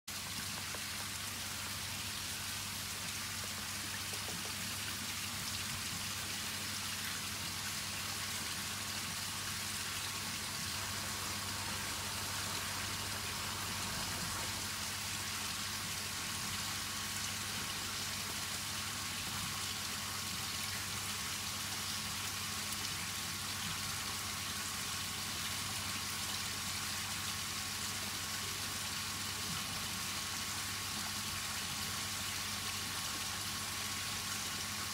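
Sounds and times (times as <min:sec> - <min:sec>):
water pattering and trickling: 0:00.1 - 0:08.0
low steady hum: 0:00.1 - 0:34.9.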